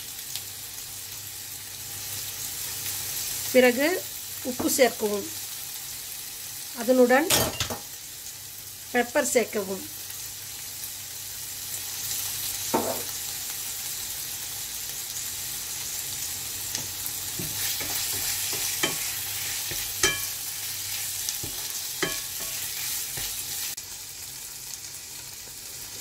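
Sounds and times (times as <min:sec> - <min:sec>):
food sizzling in oil: 0:00.0 - 0:26.0
wooden spatula scraping a pan: 0:17.4 - 0:23.8.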